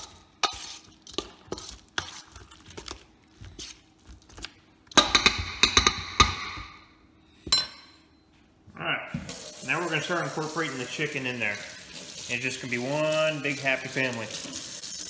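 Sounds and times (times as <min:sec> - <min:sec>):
fork scraping metal bowl: 0:00.0 - 0:02.5.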